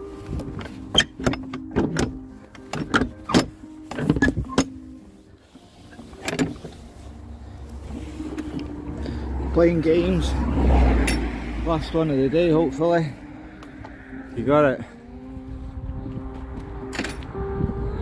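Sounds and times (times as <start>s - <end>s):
wooden knocks and thumps: 0.5s - 4.8s.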